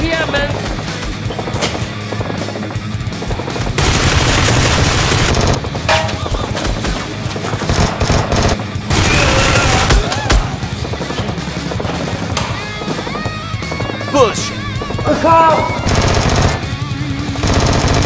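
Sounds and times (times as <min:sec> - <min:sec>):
background music: 0:00.0 - 0:18.0
automatic gunfire bursts: 0:03.8 - 0:05.6, 0:07.7 - 0:10.0, 0:15.7 - 0:16.8, 0:17.4 - 0:18.0.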